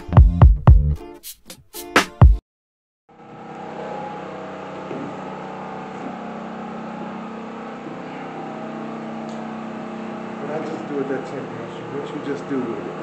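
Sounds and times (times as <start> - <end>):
background music: 0.0 - 2.4
mechanical hum: 3.2 - 13.0.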